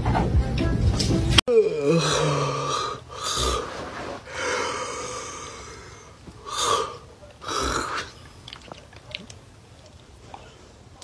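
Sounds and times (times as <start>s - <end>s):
person yawning: 1.5s - 3.7s.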